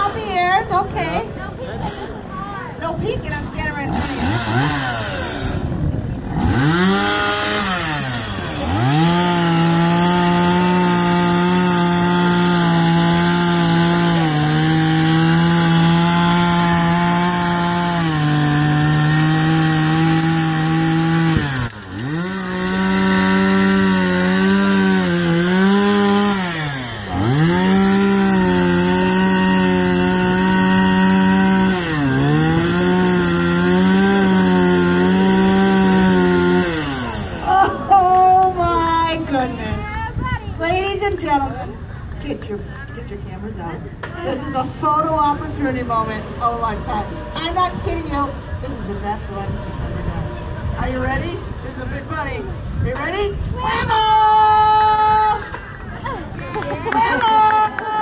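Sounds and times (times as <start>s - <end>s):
chainsaw cutting log: 3.5s - 37.9s.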